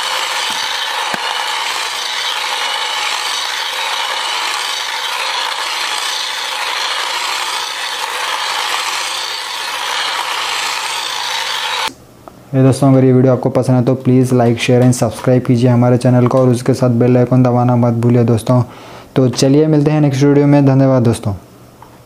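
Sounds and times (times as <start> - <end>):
toy car motor and gears whirring: 0.0 - 11.9.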